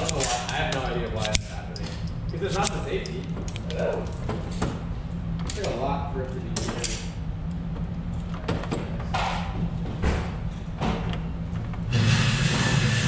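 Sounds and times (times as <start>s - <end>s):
low steady hum: 0.0s - 13.0s
loud rushing noise: 11.9s - 13.0s.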